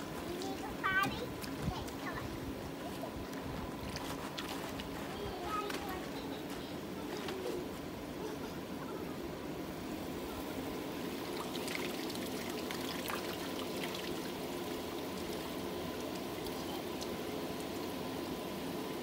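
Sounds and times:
steady low hum: 0.0s - 19.0s
water trickling on water slide: 10.8s - 18.0s.

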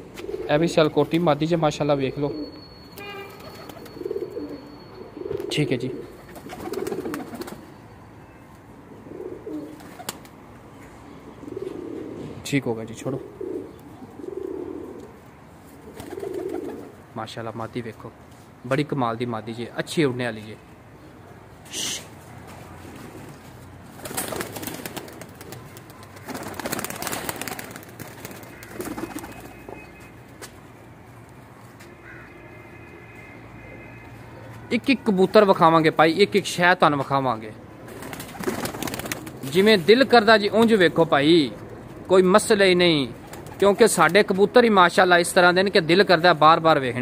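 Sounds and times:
pigeons cooing: 0.1s - 0.8s, 3.4s - 7.6s, 8.9s - 10.2s, 11.2s - 12.4s, 13.2s - 15.2s, 15.8s - 17.0s
pigeons flapping wings: 6.3s - 7.6s, 9.7s - 10.3s, 15.9s - 16.9s, 23.9s - 29.8s, 37.9s - 39.6s, 43.2s - 44.2s.

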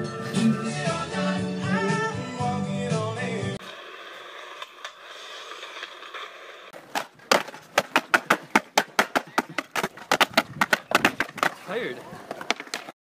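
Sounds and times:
music: 0.0s - 3.6s
skateboard wheels hissing: 3.2s - 8.6s
skateboard clacking on concrete: 3.6s - 13.0s.

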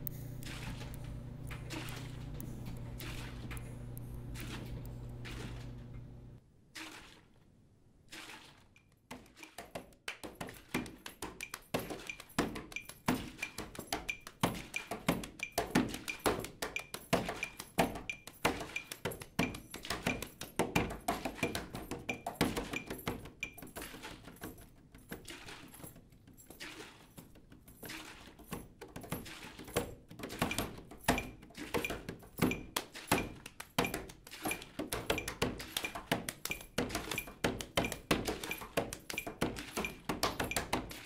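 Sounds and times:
percussion knocks and clicks: 9.6s - 25.2s, 28.5s - 41.0s
high repeating tick: 11.4s - 19.6s.

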